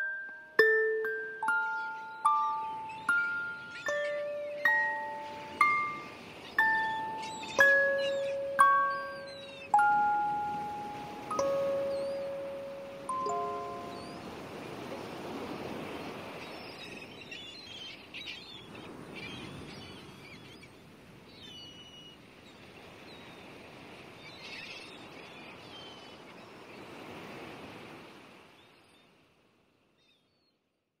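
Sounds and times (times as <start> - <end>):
birds chirping: 0.0 - 14.8
sea waves washing ashore: 0.0 - 21.4, 22.2 - 29.4.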